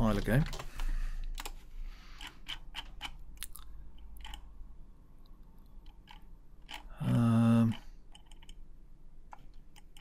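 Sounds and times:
mouse and keyboard clicks: 2.2 - 3.2, 4.0 - 4.5, 7.7 - 8.6, 9.3 - 10.0.

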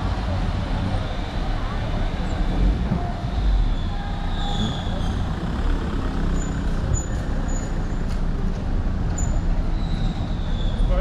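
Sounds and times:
low traffic rumble: 0.0 - 11.0
car driving past: 3.5 - 7.8.

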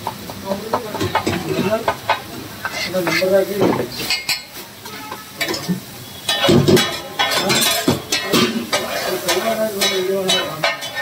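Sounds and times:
food sizzling on griddle: 0.0 - 11.0
metal utensils clicking and scraping: 0.3 - 11.0.

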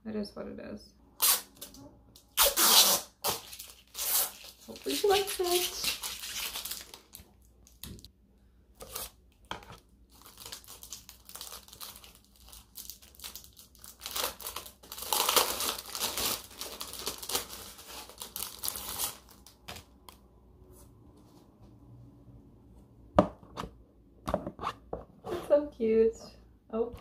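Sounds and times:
plastic film crinkling and tearing: 2.3 - 8.1, 10.1 - 20.0.

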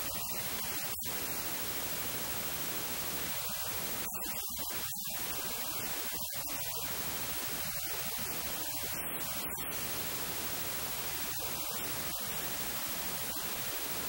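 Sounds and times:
static hiss: 0.0 - 14.0.

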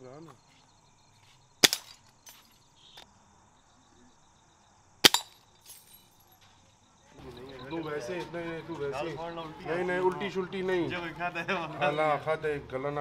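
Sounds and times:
air rifle shots: 1.6 - 2.0, 5.0 - 5.4.

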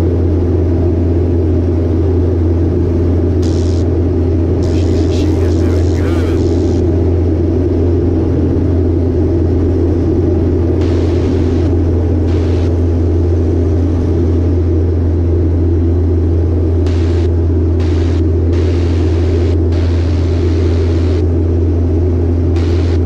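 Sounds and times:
plane engine and propeller droning: 0.0 - 23.0.

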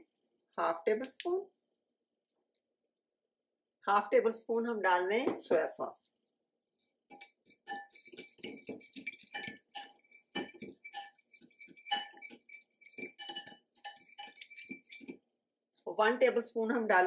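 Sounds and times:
fork clinking against glass bowl: 7.1 - 15.2.

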